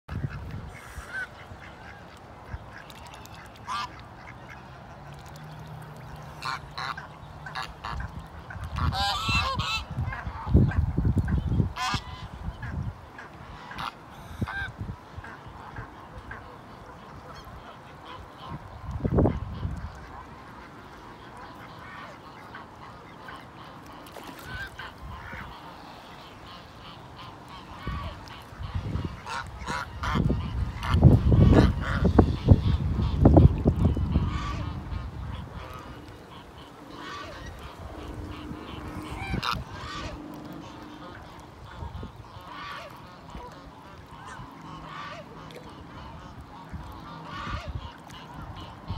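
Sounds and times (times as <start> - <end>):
geese honking: 0.1 - 5.2, 5.9 - 48.9
low rumbles: 36.8 - 42.1.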